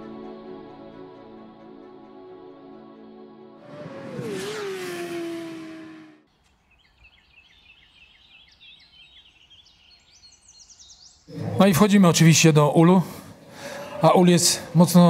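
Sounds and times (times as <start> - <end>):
birds chirping: 6.3 - 15.0.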